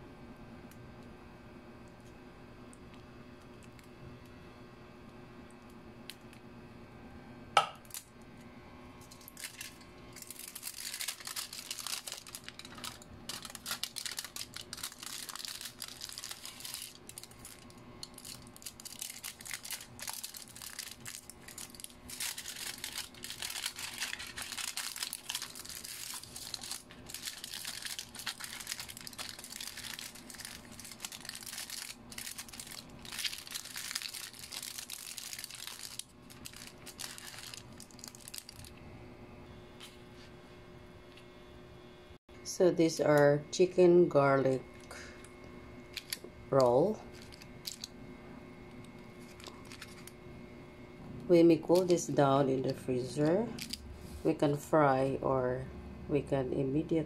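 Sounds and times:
aluminium foil crinkling: 0:09.0 - 0:38.8, 0:45.9 - 0:48.0, 0:48.8 - 0:50.2, 0:51.6 - 0:53.9.

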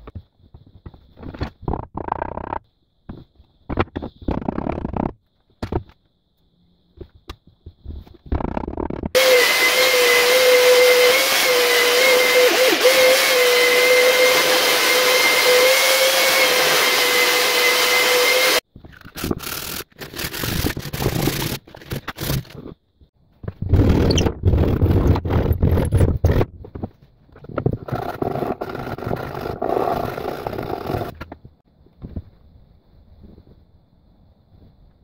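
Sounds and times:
belt sander whining: 0:09.2 - 0:18.6.

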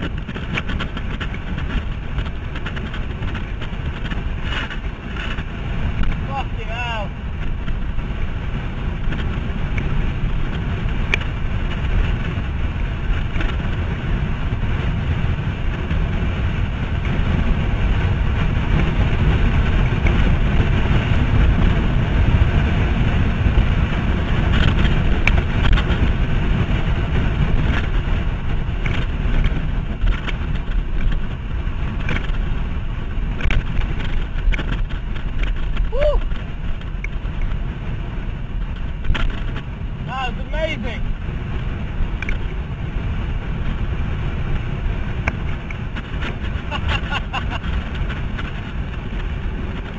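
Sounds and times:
wind buffeting microphone: 0:00.0 - 0:49.9.

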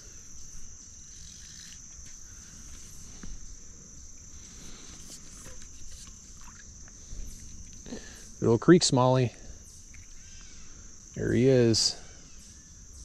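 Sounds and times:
insects shrilling: 0:00.0 - 0:13.0.

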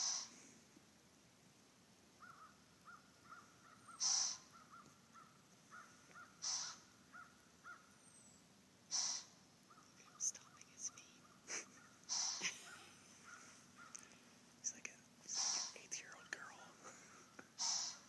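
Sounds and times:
deer snorting in alarm: 0:00.0 - 0:00.4, 0:03.9 - 0:04.6, 0:06.3 - 0:06.9, 0:08.9 - 0:09.4, 0:12.1 - 0:12.5, 0:15.3 - 0:15.8, 0:17.6 - 0:18.0.

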